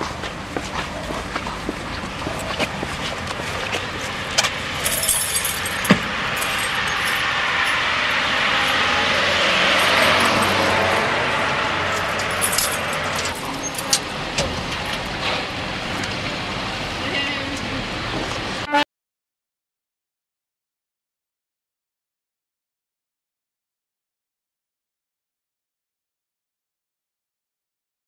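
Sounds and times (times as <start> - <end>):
car passing by: 1.4 - 18.7.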